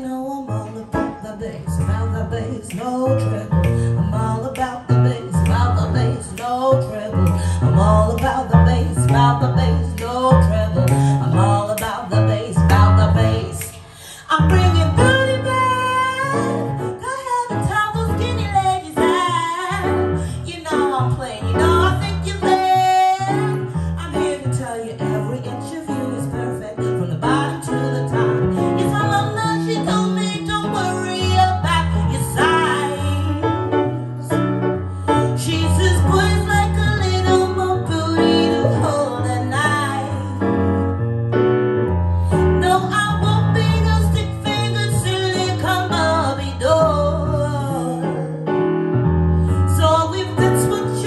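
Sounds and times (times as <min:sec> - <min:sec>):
woman singing with vibrato: 0:00.0 - 0:34.4, 0:35.3 - 0:40.5, 0:42.4 - 0:48.4, 0:49.7 - 0:51.0
digital piano chords: 0:00.0 - 0:51.0
steady bass line: 0:31.3 - 0:44.4.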